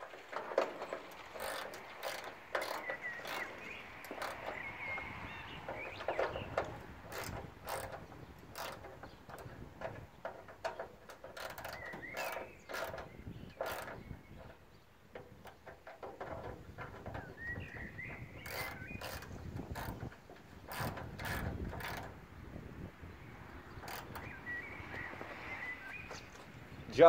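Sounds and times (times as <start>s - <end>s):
hand tool and screws rattling: 0.0s - 22.2s, 23.7s - 24.4s.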